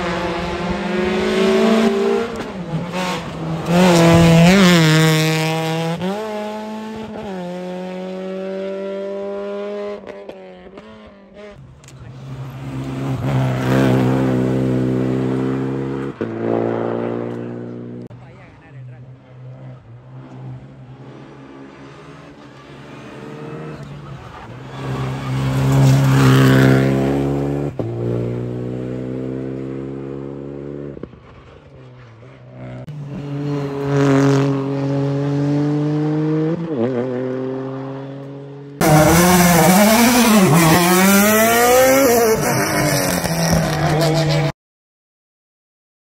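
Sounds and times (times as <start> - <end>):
rally cars accelerating past: 0.0 - 18.1, 19.0 - 44.5.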